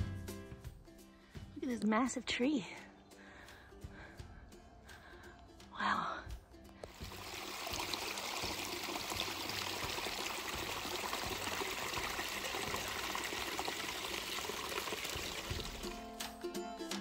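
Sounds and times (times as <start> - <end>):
music: 0.0 - 17.0
stream trickling over rocks: 6.8 - 16.2.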